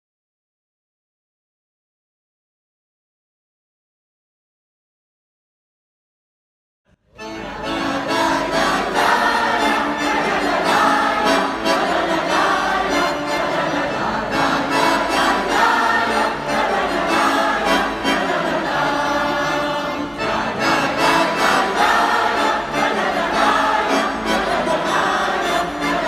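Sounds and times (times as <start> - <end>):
button accordion: 7.2 - 26.0
choir singing: 7.2 - 26.0.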